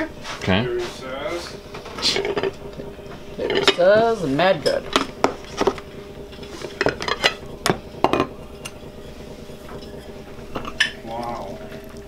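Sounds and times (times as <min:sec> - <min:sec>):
faint steady hum: 0:00.0 - 0:12.0
dishes and utensils clinking: 0:02.0 - 0:02.6, 0:03.4 - 0:03.9, 0:04.5 - 0:05.8, 0:06.4 - 0:08.8, 0:09.7 - 0:11.3.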